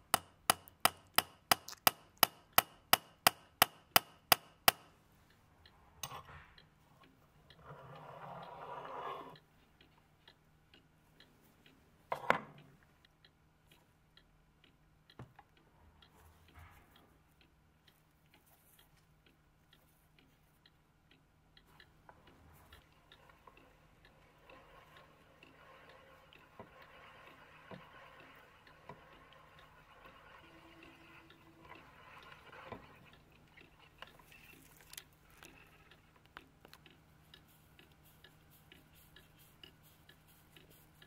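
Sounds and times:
clock ticking: 0:00.0 - 0:41.0
lathe scraping metal: 0:24.6 - 0:33.2.

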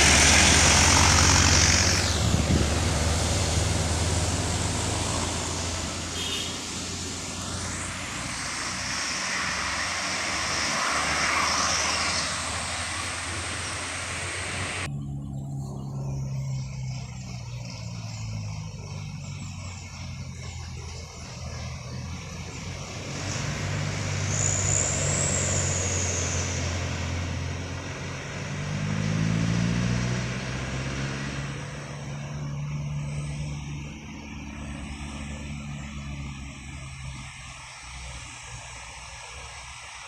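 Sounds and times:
high squeal: 0:00.0 - 0:28.2
diesel engines: 0:00.0 - 0:40.0.

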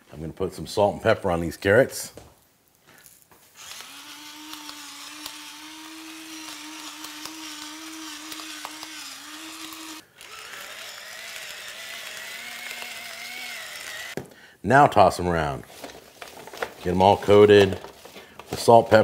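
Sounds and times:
electric grinder motor whining: 0:03.6 - 0:14.2
lower-pitched grinder motor: 0:03.6 - 0:14.2.

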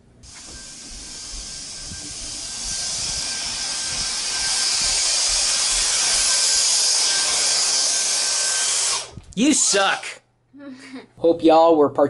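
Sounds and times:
hiss of rushing air: 0:00.2 - 0:07.6.

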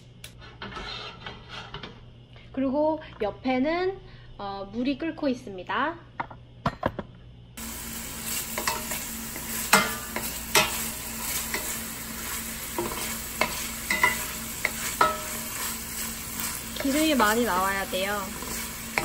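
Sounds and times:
bacon sizzling in a pan: 0:07.6 - 0:19.0
wooden spoon scraping a pan: 0:08.3 - 0:19.0.

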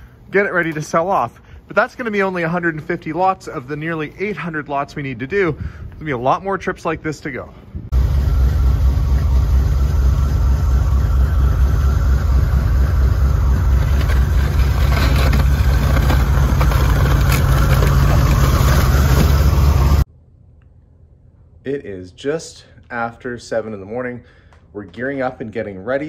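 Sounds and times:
low rumble: 0:07.6 - 0:21.6
shovel scraping snow: 0:13.7 - 0:20.0.

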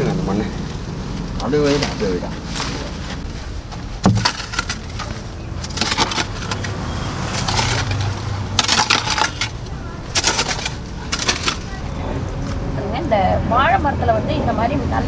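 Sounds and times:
hoe scraping loose soil: 0:01.6 - 0:12.4.

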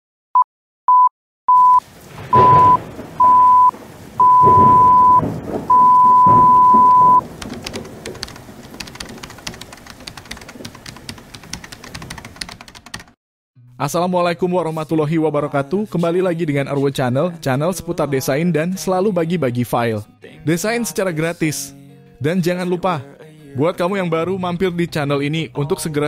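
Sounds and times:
electronic beeps: 0:00.9 - 0:07.2
thunder rolling: 0:01.7 - 0:11.9
rain: 0:01.8 - 0:11.9.

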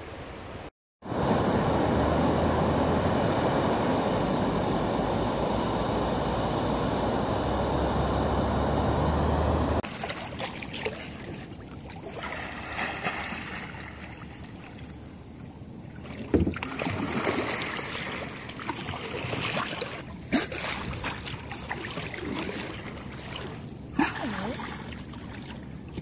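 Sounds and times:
water sloshing against boat: 0:09.0 - 0:26.0
sharp splashes: 0:09.8 - 0:15.2, 0:15.9 - 0:26.0.

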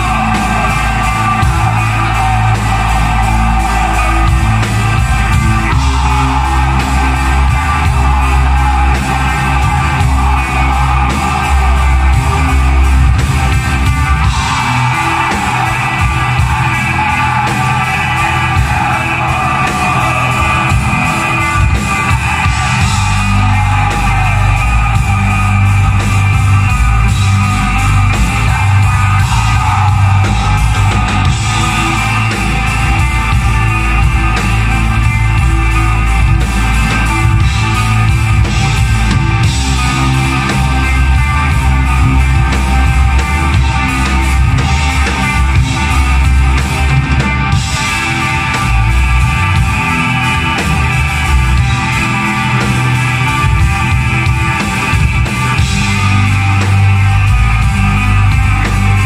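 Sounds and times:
metal band playing: 0:00.0 - 0:59.0.

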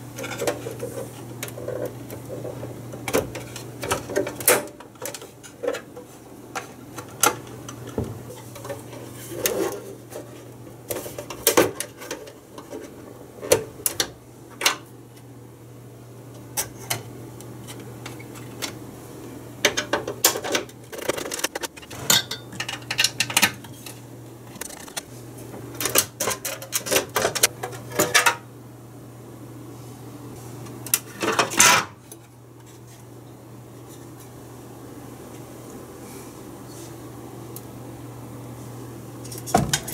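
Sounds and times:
metal parts clinking and clanking: 0:19.7 - 0:24.0.

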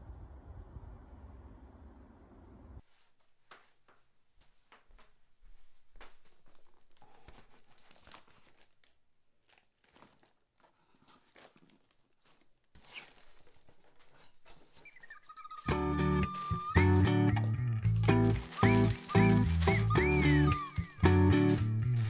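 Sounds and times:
packing tape tearing off: 0:07.0 - 0:22.0.

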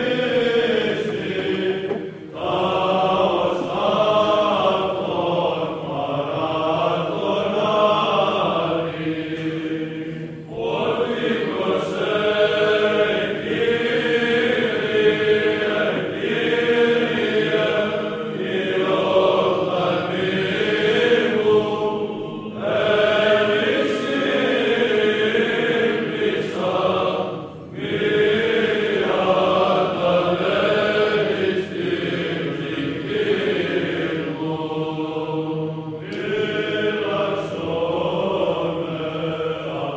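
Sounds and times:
voices chanting: 0:00.0 - 0:39.9.

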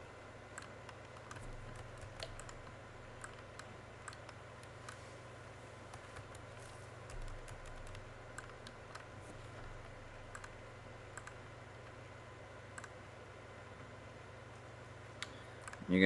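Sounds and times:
low hum: 0:00.0 - 0:15.9
mouse and keyboard clicks: 0:00.6 - 0:05.0, 0:05.9 - 0:11.4, 0:12.8 - 0:13.0.

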